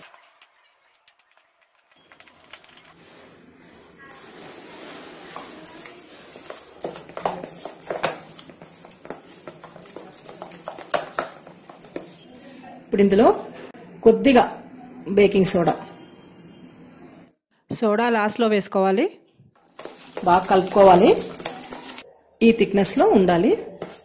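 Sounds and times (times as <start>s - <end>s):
batter being mixed by hand: 0.0s - 12.2s, 19.7s - 22.0s.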